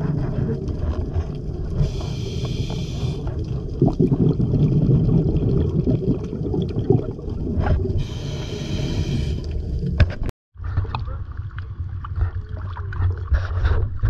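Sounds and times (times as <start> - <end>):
low steady boat hum: 0.0 - 3.5
muffled underwater rumble: 0.0 - 14.0
scuba regulator breath hissing: 1.8 - 3.3, 7.9 - 9.7.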